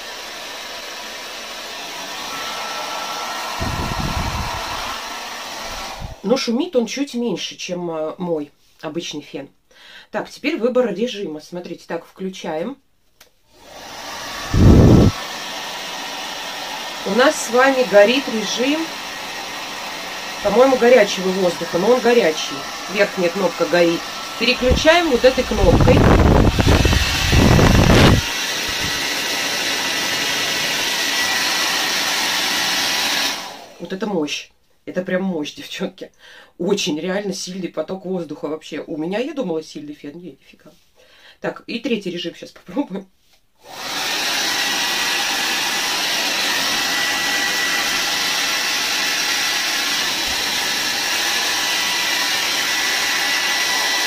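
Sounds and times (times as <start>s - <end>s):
hair dryer running: 0.0s - 6.3s, 13.5s - 33.9s, 43.6s - 54.0s
wind buffeting microphone: 3.6s - 4.9s, 14.4s - 15.2s, 24.6s - 28.3s.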